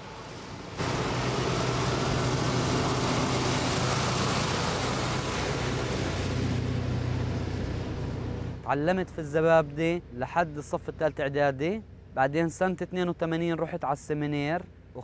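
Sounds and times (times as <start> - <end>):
heavy truck driving past: 0.0 - 8.7.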